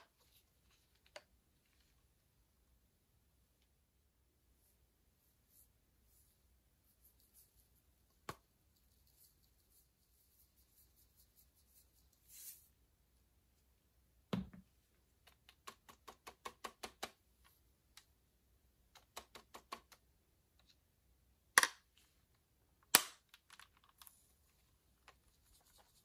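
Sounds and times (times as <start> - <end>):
plastic lid snaps: 21.6 - 21.8.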